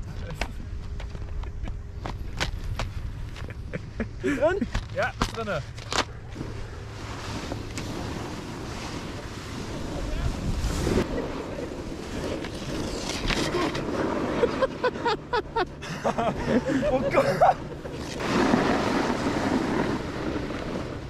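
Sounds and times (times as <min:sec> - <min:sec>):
wind noise on microphone: 0:06.4 - 0:11.3
skis scraping over snow: 0:06.4 - 0:15.0, 0:16.4 - 0:21.0.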